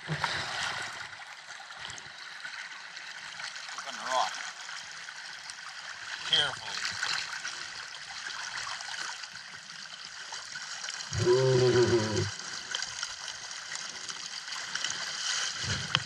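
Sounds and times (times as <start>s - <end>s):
river water rippling and splashing: 0.0s - 16.0s
low voice: 11.2s - 12.3s.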